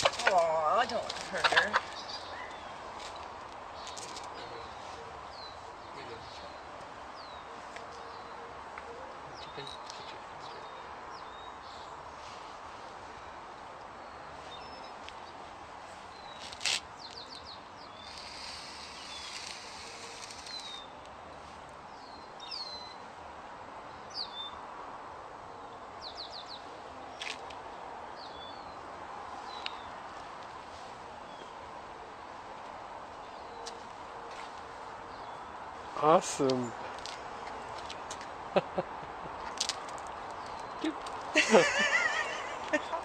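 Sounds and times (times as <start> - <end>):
small birds chirping: 0.0 - 12.5, 16.0 - 23.1, 25.6 - 30.0, 35.0 - 43.0
steady outdoor hiss: 0.0 - 43.0
chalk scratching on concrete: 18.0 - 20.8.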